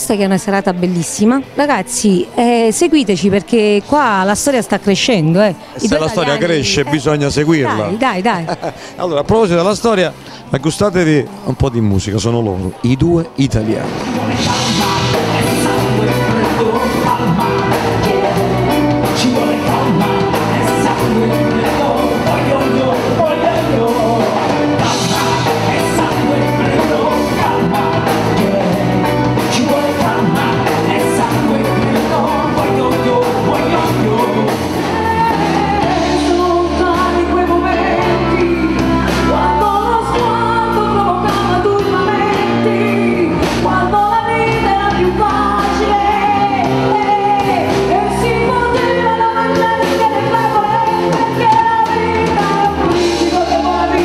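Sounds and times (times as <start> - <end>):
woman singing: 0.0 - 7.0, 14.3 - 54.0
electric guitar: 5.6 - 9.0, 13.6 - 54.0
man singing: 5.8 - 8.8, 13.8 - 40.4, 41.2 - 54.0
drums: 12.7 - 54.0.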